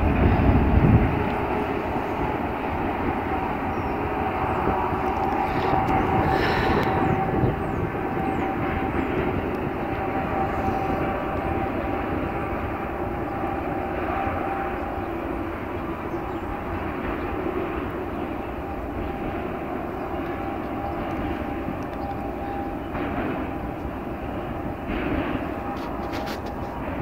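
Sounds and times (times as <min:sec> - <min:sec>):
fluttering low rumble: 0:00.0 - 0:15.0
distant engine drone: 0:00.0 - 0:27.0.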